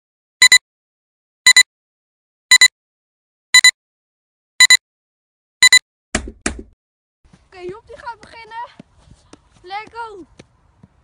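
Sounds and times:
high electronic double beep: 0.4s - 0.6s, 1.5s - 1.7s, 2.5s - 2.7s, 3.6s - 3.8s, 4.6s - 4.8s, 5.6s - 5.8s.

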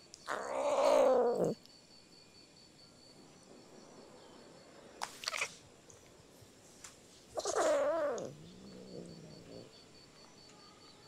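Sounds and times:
cat harsh meow: 0.3s - 1.6s, 7.4s - 8.3s
cat yowling and growling: 0.3s - 1.6s, 7.4s - 9.7s.

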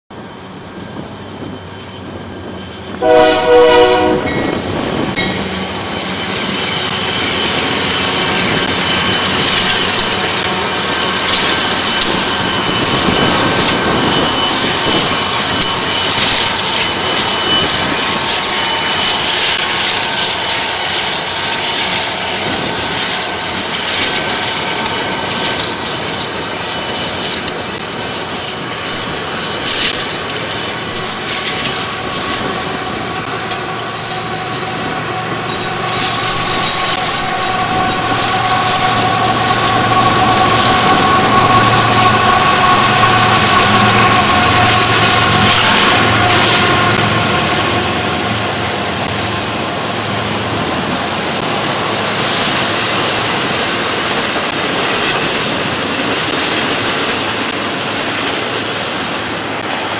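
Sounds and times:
freight train rumbling: 0.1s - 59.9s
high wheel squeals: 0.2s - 50.6s
train horn blast: 3.0s - 4.6s, 31.6s - 48.8s.

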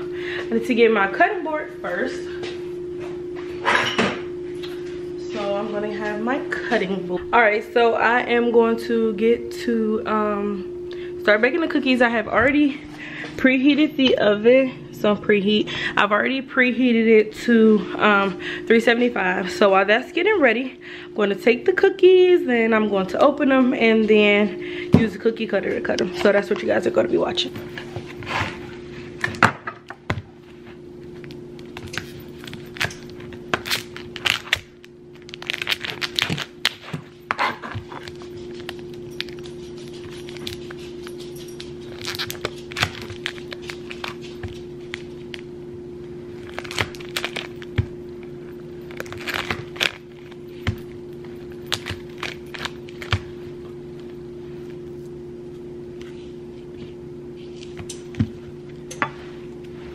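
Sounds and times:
steady low hum: 0.0s - 59.9s
plastic wrapper crinkling and tearing: 31.2s - 45.5s, 46.4s - 47.9s, 48.8s - 50.5s, 51.2s - 53.3s.

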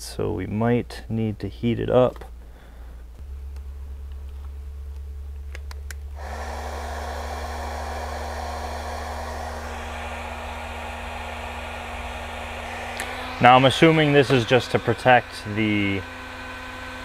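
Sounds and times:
heat gun blowing: 6.1s - 17.0s.

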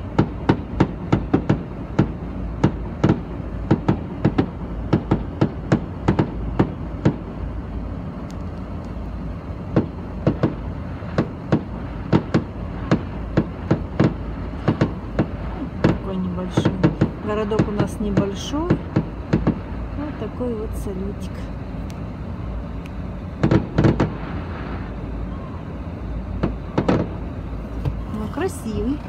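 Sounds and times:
fireworks popping and banging: 0.0s - 7.3s, 9.7s - 19.7s, 23.4s - 24.8s, 26.4s - 27.2s
steady low hum: 0.0s - 29.0s.

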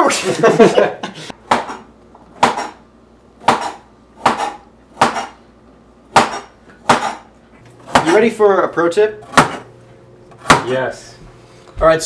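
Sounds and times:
knife chopping carrot on board: 1.4s - 2.8s, 3.4s - 5.4s, 6.1s - 7.3s, 9.3s - 9.6s, 10.4s - 10.7s.

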